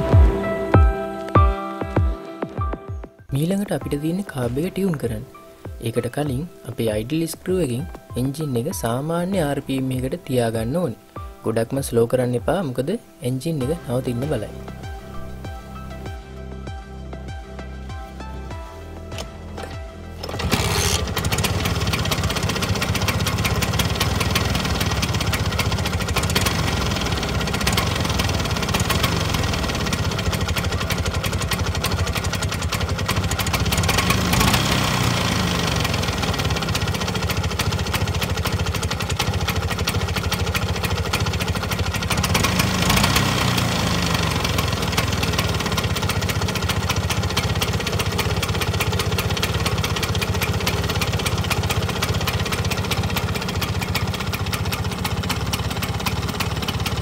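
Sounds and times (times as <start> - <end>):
scooter engine idling: 18.5 - 57.0.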